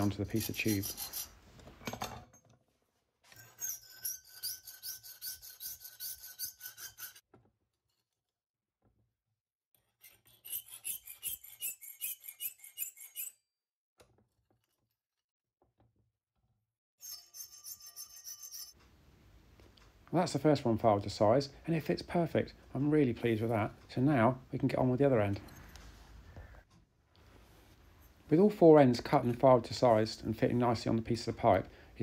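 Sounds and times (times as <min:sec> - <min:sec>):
hand file rasping on steel: 0:00.0 - 0:01.4, 0:03.4 - 0:07.2, 0:09.8 - 0:13.4, 0:17.0 - 0:18.8.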